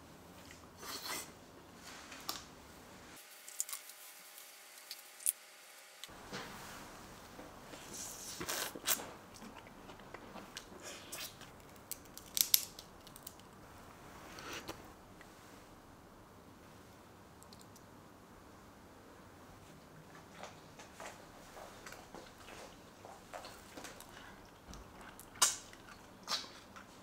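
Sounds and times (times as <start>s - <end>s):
small clicks and crackles of handling: 11.4s - 13.6s.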